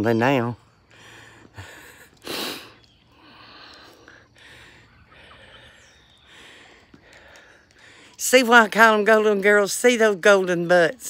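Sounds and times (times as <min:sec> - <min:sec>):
yard ambience: 0:00.0 - 0:11.0
young hens chirping: 0:02.2 - 0:08.1.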